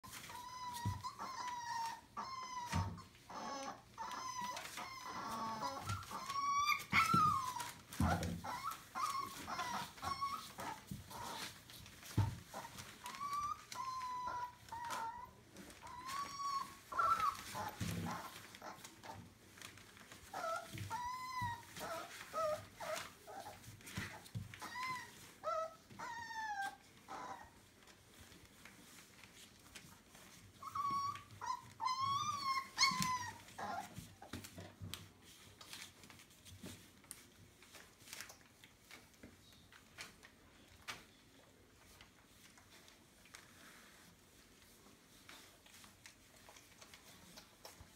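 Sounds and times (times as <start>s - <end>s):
puppies whimpering and squealing: 0.0s - 27.6s, 29.1s - 34.8s
rustling and scratching on newspaper: 0.0s - 47.9s.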